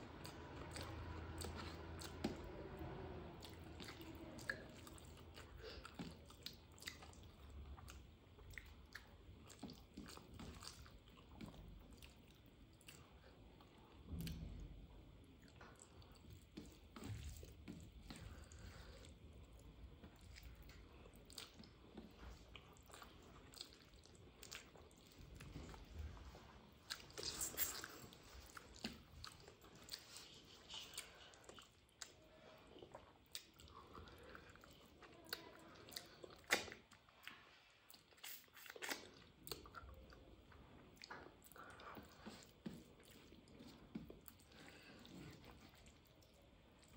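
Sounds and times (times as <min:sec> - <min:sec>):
wet chewing: 0:00.1 - 0:14.6, 0:15.2 - 0:46.9
mouth clicks and smacks: 0:36.0 - 0:37.3.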